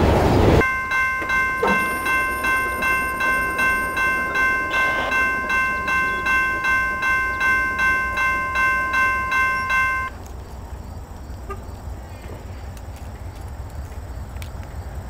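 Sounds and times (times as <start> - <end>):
faint outdoor background noise: 0.0 - 15.0
crossing bell ringing: 0.6 - 10.2.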